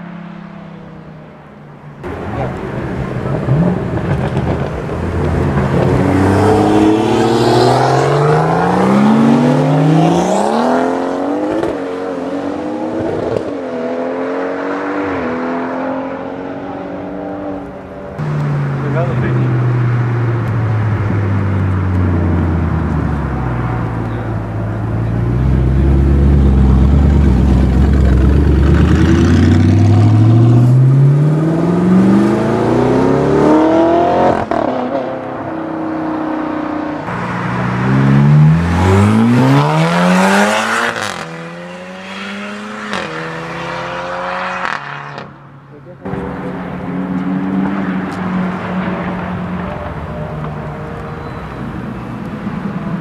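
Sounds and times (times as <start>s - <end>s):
car engine accelerating hard: 2.0s - 53.0s.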